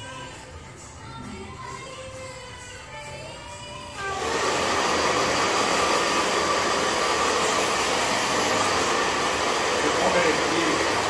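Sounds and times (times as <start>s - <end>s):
hair dryer blowing: 4.0s - 11.0s.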